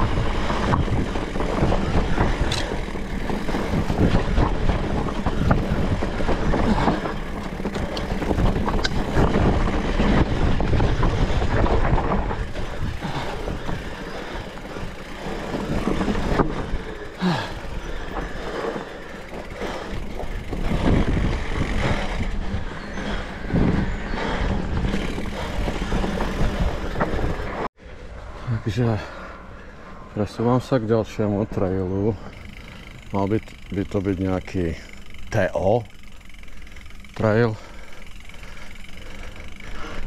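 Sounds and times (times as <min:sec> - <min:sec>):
wind rushing over microphone: 0:00.0 - 0:17.0, 0:19.9 - 0:29.0
bike knocks and rattles: 0:00.0 - 0:27.7, 0:32.3 - 0:40.0
bike tyres rolling on dirt: 0:00.0 - 0:40.0.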